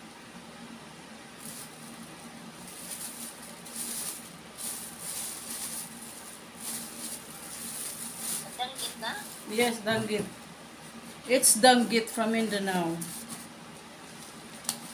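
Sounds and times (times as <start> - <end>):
plastic bag rustling and crinkling: 1.4 - 10.3.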